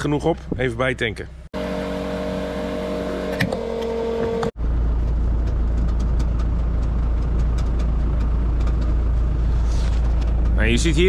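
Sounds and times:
tractor diesel engine idling: 4.5s - 11.0s.

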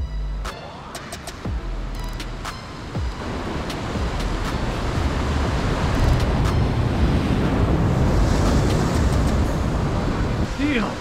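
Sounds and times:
wind rumbling on microphone: 1.5s - 11.0s.

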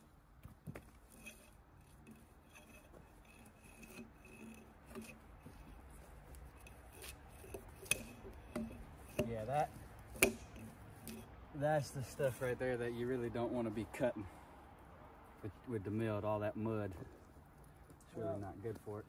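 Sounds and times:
hand tools scraping a log: 0.7s - 12.6s.

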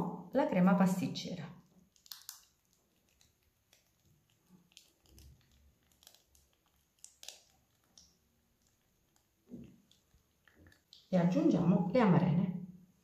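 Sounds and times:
plastic piping bag crinkling: 1.6s - 11.9s.

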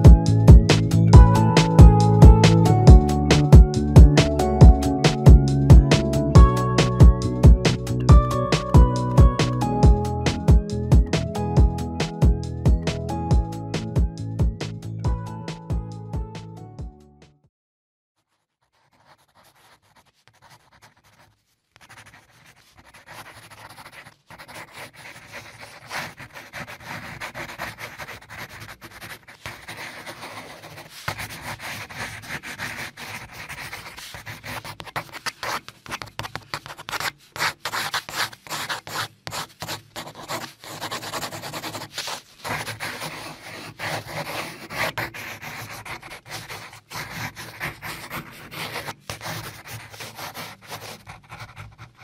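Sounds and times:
pencil shading on paper: 18.3s - 52.0s.

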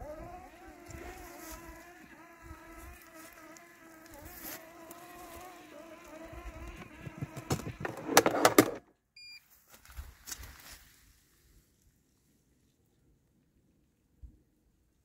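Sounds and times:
robotic mower motors whining: 0.0s - 8.8s.

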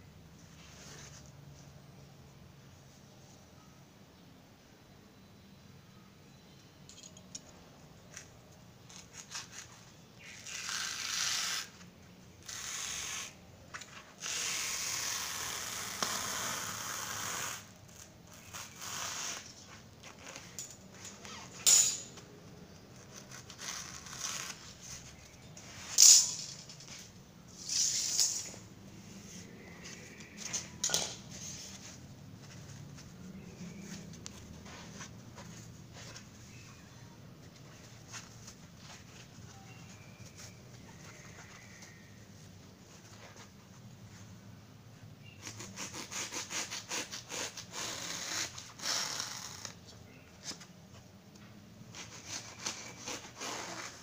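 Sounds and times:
knife cutting through foam: 45.4s - 49.7s, 51.9s - 54.0s.

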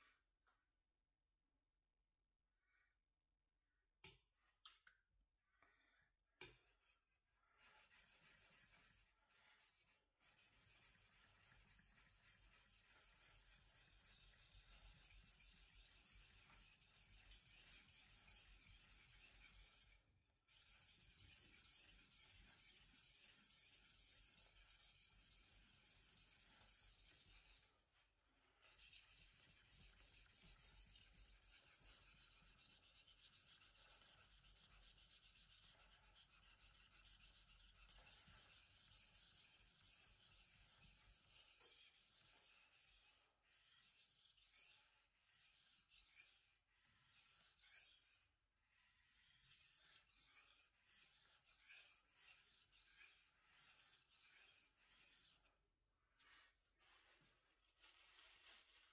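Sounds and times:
knife scraping on whetstone: 49.1s - 55.4s.

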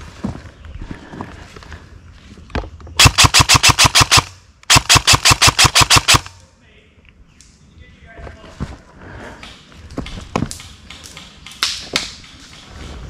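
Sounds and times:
airsoft rifle rapid shots: 3.0s - 6.4s.

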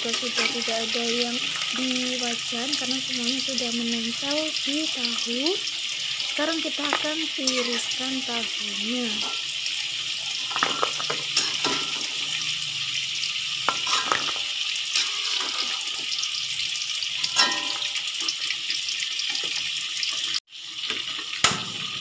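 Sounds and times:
hot oil sizzling in a wok: 0.0s - 22.0s
metal spatula clinking on wok: 10.5s - 12.1s, 17.2s - 18.1s.

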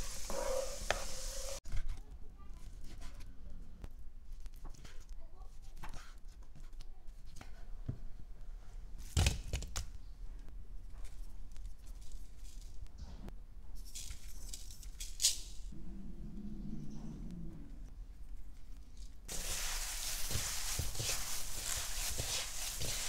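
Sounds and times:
seasoning sprinkled hiss: 0.0s - 1.6s, 19.3s - 23.0s.

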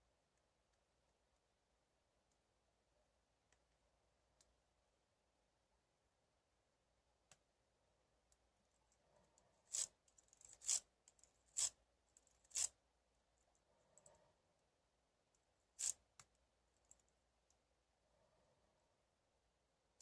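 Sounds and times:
lock pick scraping in lock: 9.7s - 10.8s.

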